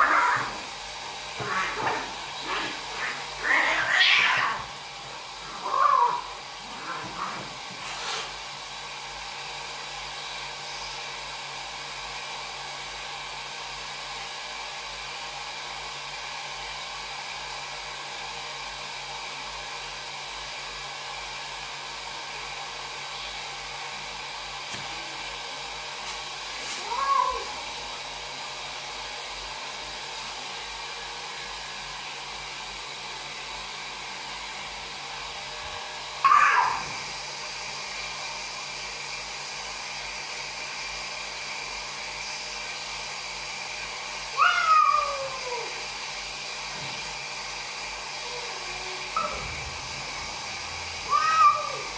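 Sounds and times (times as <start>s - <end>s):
cat yowling: 0.0s - 0.7s, 1.4s - 4.7s, 5.4s - 7.5s, 26.8s - 27.6s, 36.2s - 37.0s, 44.3s - 45.8s, 48.2s - 49.8s, 51.0s - 51.9s.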